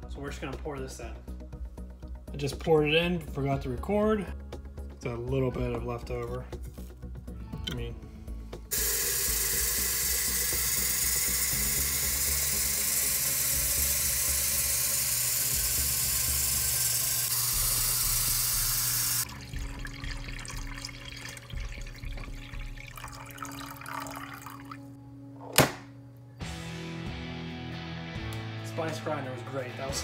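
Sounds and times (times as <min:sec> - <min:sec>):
faucet water splashing into carafe: 0:08.7 - 0:24.8.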